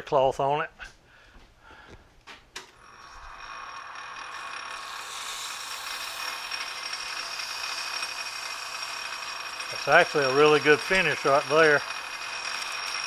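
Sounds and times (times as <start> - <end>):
lathe spinning whine: 2.8 - 13.0
emery cloth hissing on workpiece: 4.8 - 6.3.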